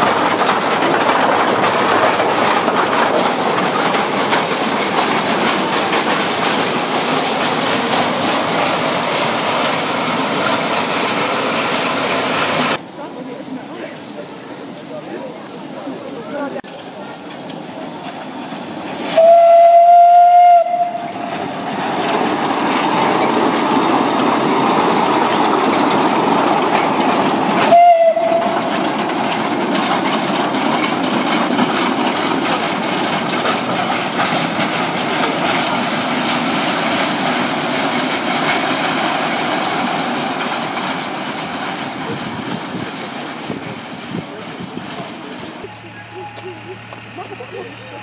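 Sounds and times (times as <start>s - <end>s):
train rushing and rattling past: 0.0s - 48.0s
steam whistle: 19.0s - 21.2s, 27.7s - 28.6s.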